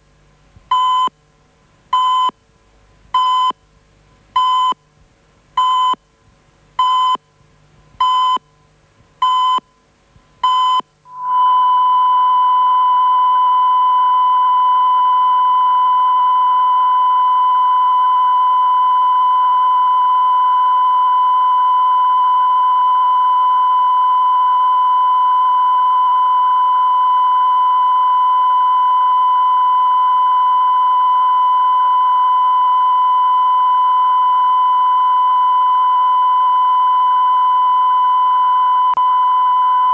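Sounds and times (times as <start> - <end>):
short beeps: 10.4 - 39.9.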